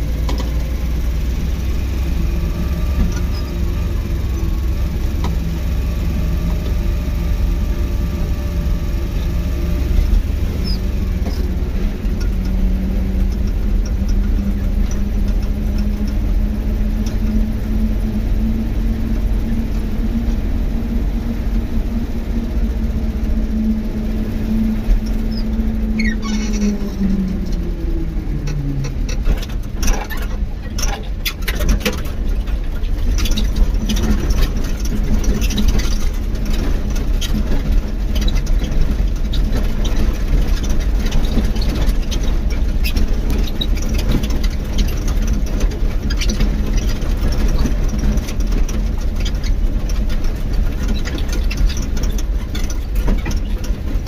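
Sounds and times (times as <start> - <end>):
vehicle rumbling over dirt road: 0.0 - 54.0
crackling and rattling clicks: 28.4 - 54.0.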